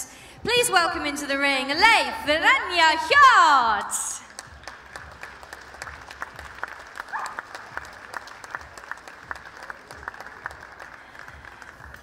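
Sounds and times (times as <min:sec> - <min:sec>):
crowd applauding: 0:04.2 - 0:12.0.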